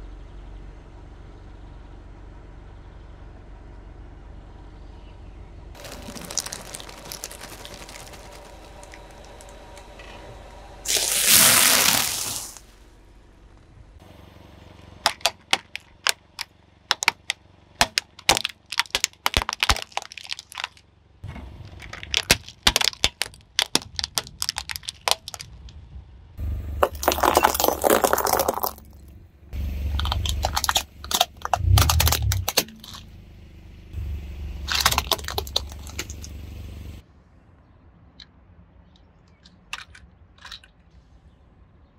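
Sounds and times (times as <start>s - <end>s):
plastic toys cracking under a tyre: 5.8s - 9.6s, 10.9s - 12.6s, 15.0s - 20.8s, 21.6s - 25.9s, 26.8s - 29.1s, 29.9s - 33.1s, 34.7s - 36.4s, 39.4s - 40.9s
crunching and grinding plastic: 5.8s - 9.9s, 10.9s - 12.7s, 15.0s - 25.9s, 26.8s - 29.1s, 29.8s - 33.1s, 34.6s - 36.4s.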